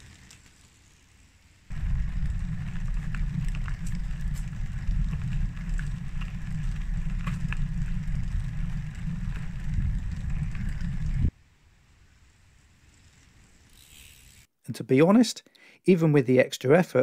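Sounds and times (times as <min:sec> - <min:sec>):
bike tyres rumbling on dirt: 0:00.0 - 0:11.4
wind buffeting: 0:01.7 - 0:11.4.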